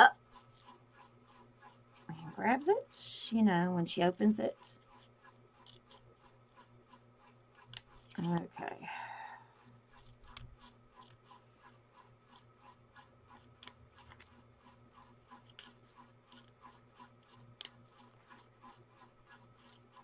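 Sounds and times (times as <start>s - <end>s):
scissors snipping paper: 4.6s - 6.7s, 9.9s - 20.0s.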